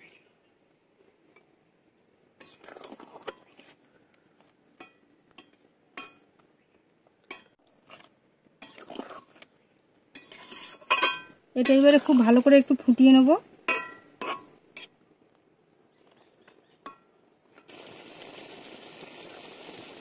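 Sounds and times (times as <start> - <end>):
metal spatula scraping a pan: 2.4 - 3.7, 10.1 - 12.2, 13.7 - 15.0.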